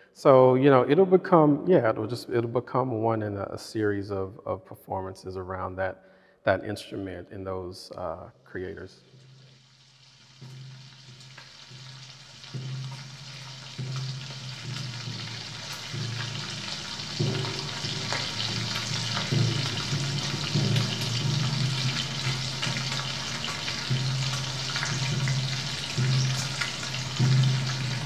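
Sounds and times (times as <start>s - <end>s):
deep-frying sizzle and crackle: 9.1s - 28.0s.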